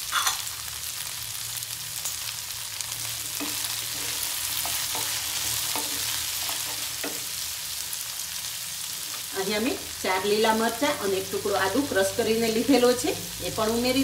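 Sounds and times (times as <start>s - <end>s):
vegetables sizzling in oil: 0.0s - 14.0s
spatula scraping a pan: 3.1s - 7.4s.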